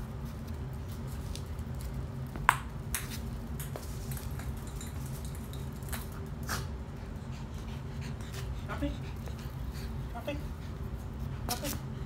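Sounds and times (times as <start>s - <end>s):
rubber ball bouncing on concrete: 2.2s - 5.2s.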